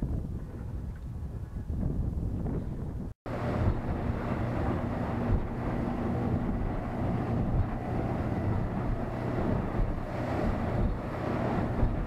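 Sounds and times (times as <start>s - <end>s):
wind on microphone: 0.0s - 12.0s
hull thumping on water: 3.3s - 12.0s
outboard motor running: 3.3s - 12.0s.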